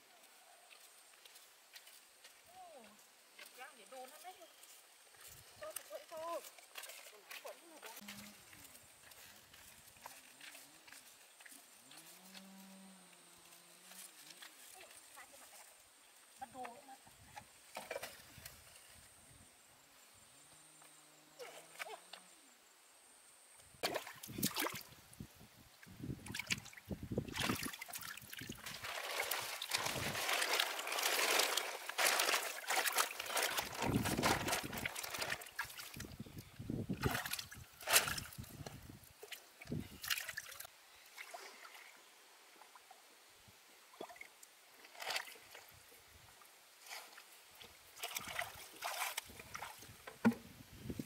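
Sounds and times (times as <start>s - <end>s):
shallow water splashing: 26.2s - 36.1s, 48.0s - 49.8s.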